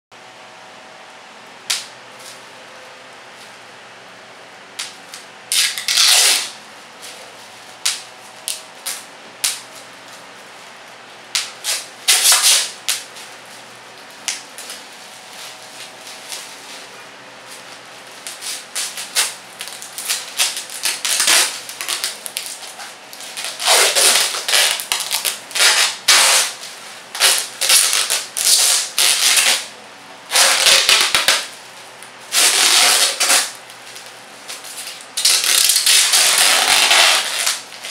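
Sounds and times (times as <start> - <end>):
bubble wrap popping: 18.2 - 26.6, 27.2 - 29.7, 30.3 - 31.5, 32.3 - 37.9.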